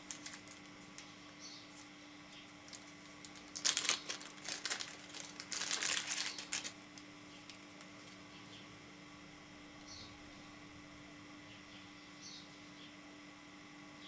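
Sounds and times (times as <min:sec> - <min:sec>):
plastic bag crinkling: 0:00.0 - 0:01.1, 0:02.6 - 0:06.8.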